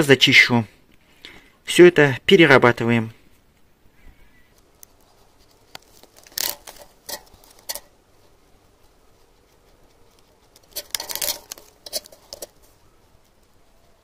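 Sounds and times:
knife scraping wire insulation: 4.6 - 8.0, 9.0 - 13.5.

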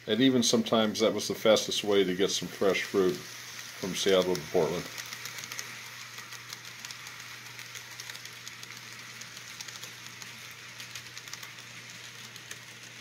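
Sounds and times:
model train wheels clicking: 0.0 - 13.0.

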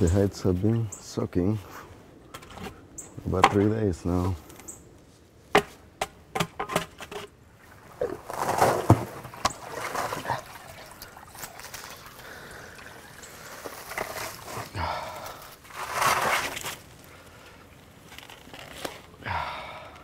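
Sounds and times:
water splashing and trickling: 7.6 - 16.8
water dripping: 9.3 - 13.6.

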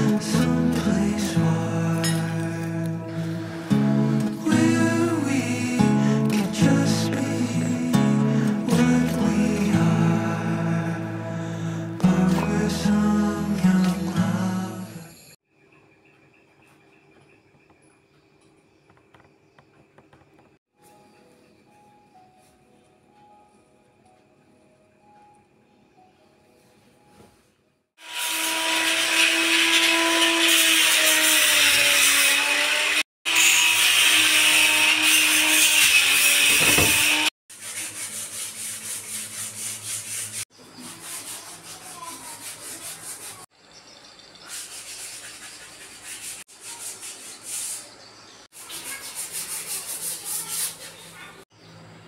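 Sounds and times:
electric power tool running: 28.0 - 37.3
sandpaper rubbing on wall: 28.0 - 43.5, 44.4 - 51.4.

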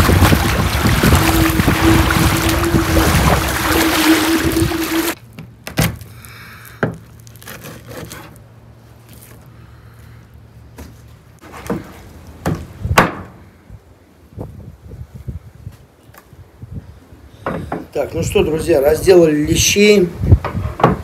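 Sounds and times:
rushing water: 0.0 - 5.2
wind noise: 0.0 - 5.2, 13.6 - 17.0, 19.5 - 21.0
knife scraping: 7.4 - 8.4.

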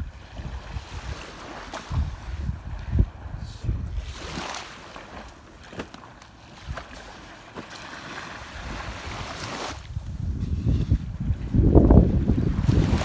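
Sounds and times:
wind on microphone: 0.0 - 5.3, 8.0 - 13.0
small waves on sand: 0.0 - 13.0
plastic spades scraping wet sand: 9.3 - 11.1.

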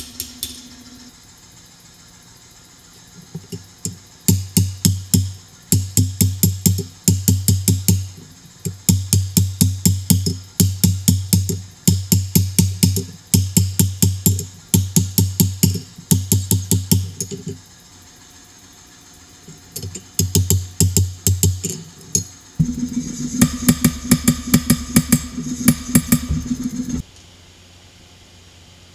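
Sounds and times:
music with fast drum beat: 4.3 - 17.5, 22.6 - 27.0.

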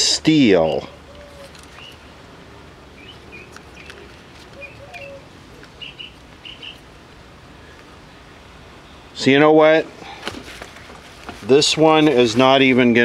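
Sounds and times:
birds chirping: 0.3 - 11.0
lower bird calls: 0.6 - 2.2, 2.9 - 6.9.

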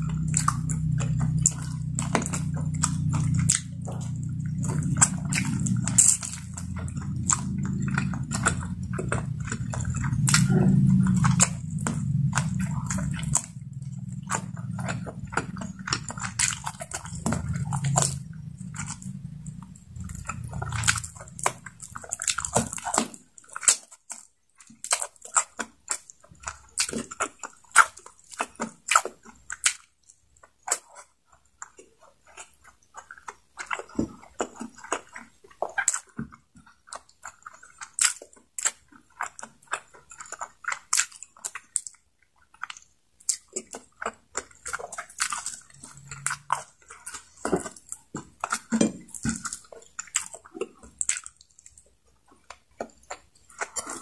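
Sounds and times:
low rumble: 0.0 - 22.8
chewing and lip smacks: 0.0 - 54.0.

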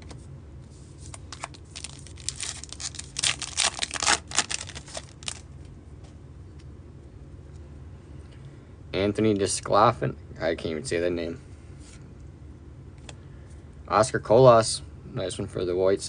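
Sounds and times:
wrapper tearing and crinkling: 1.1 - 5.4.

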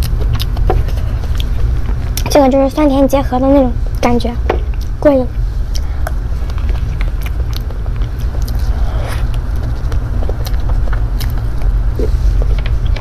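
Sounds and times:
biting and chewing: 0.0 - 2.3, 5.7 - 13.0
steady low rumble: 0.0 - 13.0.

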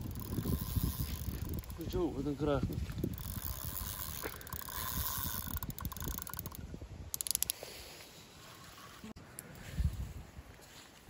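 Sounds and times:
fishing reel gears whirring: 0.0 - 7.6
sharp reel clicks: 0.0 - 7.6.

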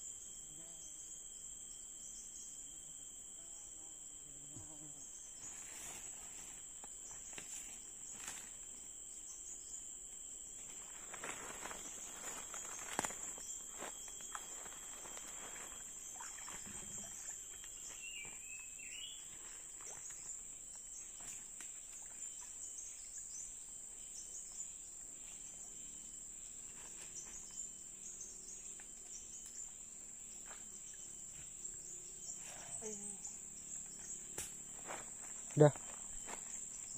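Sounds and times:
high-pitched insect drone: 0.0 - 36.9.

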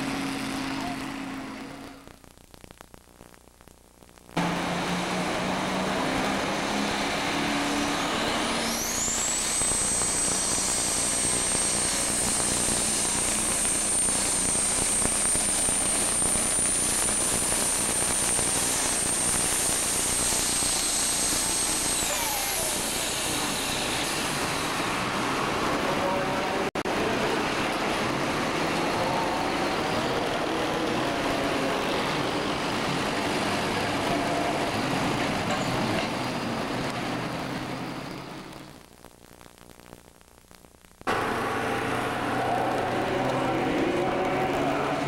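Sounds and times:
diesel engine at full throttle: 0.0 - 2.1, 4.4 - 38.6, 41.1 - 45.0
high turbo whine: 4.4 - 26.6, 41.0 - 45.0.

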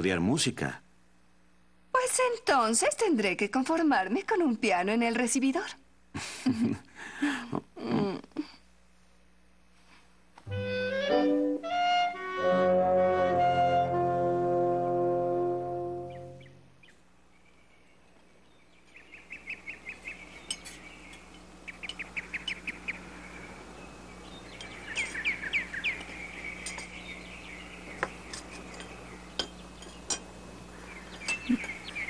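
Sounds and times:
birds chirping: 15.0 - 32.0
cutlery clinking on dishes: 28.3 - 30.3, 31.2 - 31.8.

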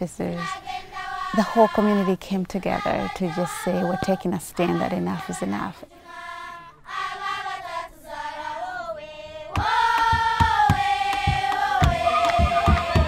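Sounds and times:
choir of high voices singing: 0.2 - 13.0
beat of thumps and hand claps: 9.5 - 13.0.

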